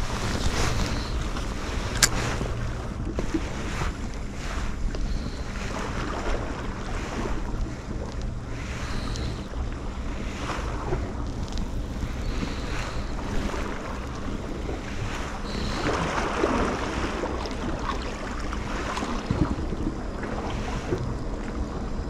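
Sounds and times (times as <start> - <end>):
waves lapping against rocks: 0.0 - 22.0
wind buffeting microphone: 0.0 - 22.0.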